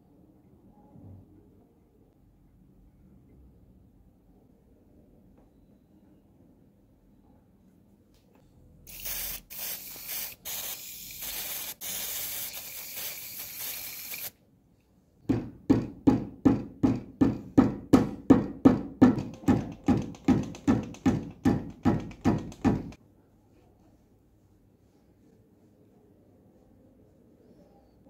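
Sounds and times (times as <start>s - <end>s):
aerosol spray hissing: 8.9s - 14.3s.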